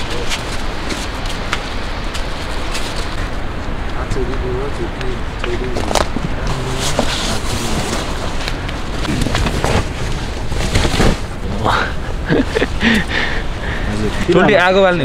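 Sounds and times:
steady low rumble: 0.0 - 14.4
rustling tent fabric and bedding: 5.8 - 12.6.

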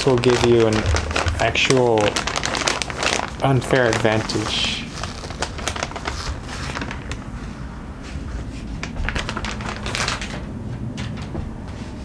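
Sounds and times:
plastic bag crinkling: 0.0 - 7.4, 8.7 - 10.5.

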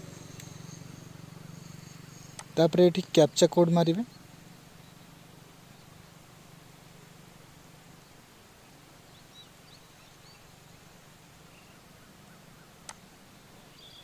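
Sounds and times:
faint bird chirps: 0.0 - 2.6, 4.0 - 6.2, 11.4 - 14.0
low steady hum: 0.0 - 14.0.

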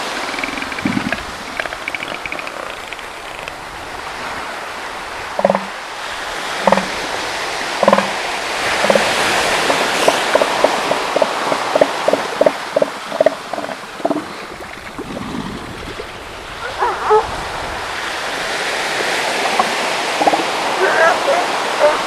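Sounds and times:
elephant seals calling: 0.0 - 3.5, 5.4 - 5.8, 6.5 - 7.1, 7.7 - 15.1, 16.6 - 17.3, 18.3 - 22.0
surf: 0.0 - 22.0.

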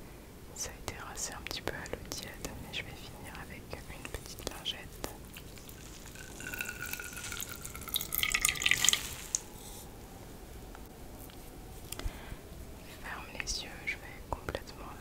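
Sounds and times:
water trickling and dripping: 5.0 - 9.6.

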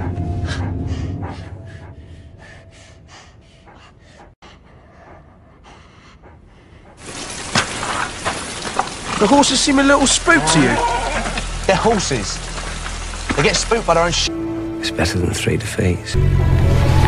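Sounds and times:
low music: 0.0 - 3.6, 10.0 - 17.0
wolf sniffing: 3.1 - 9.2.

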